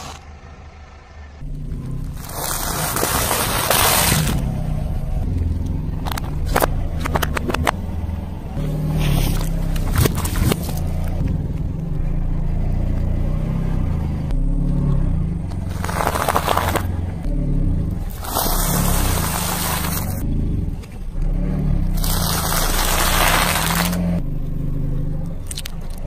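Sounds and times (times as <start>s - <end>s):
car engine running: 0.0s - 26.0s
tyre crackling over small balls: 2.1s - 4.6s, 15.7s - 16.9s, 18.1s - 20.2s, 22.0s - 24.0s
tyre crushing objects: 2.1s - 4.6s, 9.0s - 11.2s, 15.7s - 17.0s, 18.0s - 20.2s, 22.0s - 24.2s.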